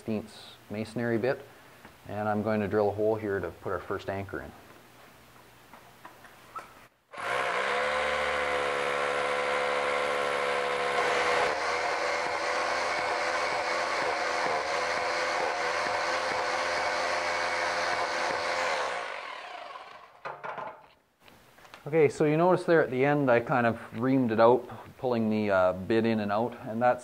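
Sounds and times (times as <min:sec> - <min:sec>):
hammer drill drilling concrete: 0:07.1 - 0:20.2.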